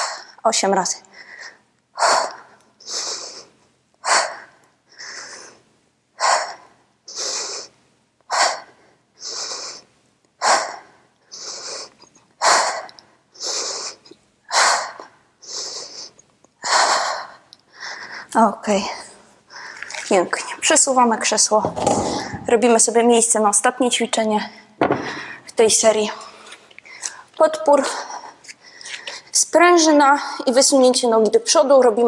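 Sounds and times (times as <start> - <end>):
woman breathing hard: 1.1 - 18.4, 21.8 - 22.5, 24.6 - 25.5.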